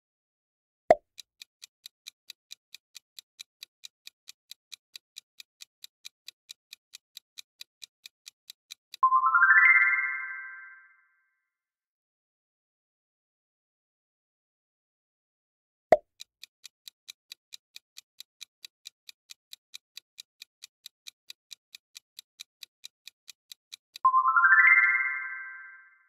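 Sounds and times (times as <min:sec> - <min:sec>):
bright rising chime: 0:09.0 - 0:10.9, 0:24.1 - 0:26.0
countdown timer ticking: 0:18.4 - 0:26.0.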